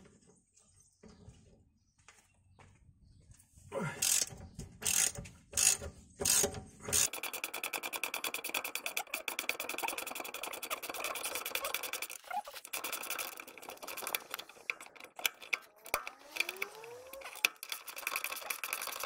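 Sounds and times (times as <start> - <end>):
ratchet wrench clicking: 4.0 - 19.0.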